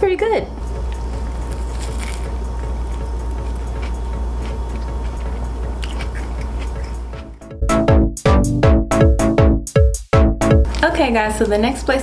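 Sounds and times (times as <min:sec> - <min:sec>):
low hum: 0:00.0 - 0:09.6
chewing crunchy bread: 0:00.9 - 0:07.3.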